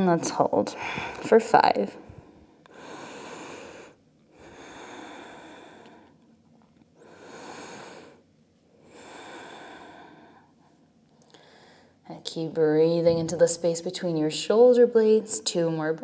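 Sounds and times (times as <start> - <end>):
woman breathing deeply: 0.7 - 1.3, 2.0 - 6.2, 7.0 - 12.0.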